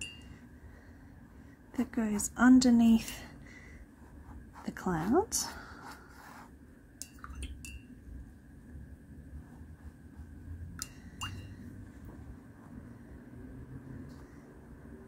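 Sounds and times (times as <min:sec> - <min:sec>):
paintbrush clinking against ceramic mug: 0:07.0 - 0:07.9, 0:10.8 - 0:11.6.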